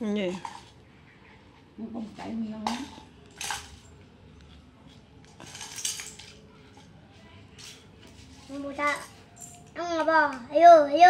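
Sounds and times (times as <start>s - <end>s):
utensils clinking on tin pail: 2.6s - 4.0s, 5.3s - 6.5s.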